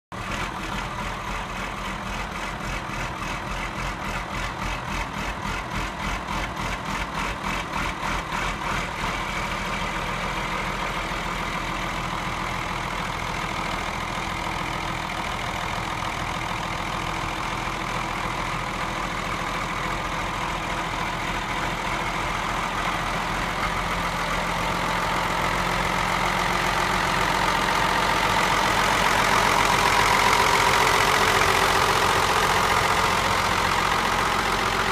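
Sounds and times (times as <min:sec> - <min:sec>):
tractor diesel engine idling: 0:00.1 - 0:34.9.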